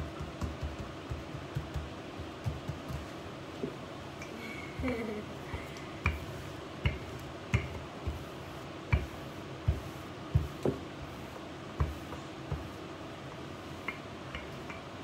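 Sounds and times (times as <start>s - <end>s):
rolling pin knocking on countertop: 0.0s - 3.1s, 6.0s - 8.2s.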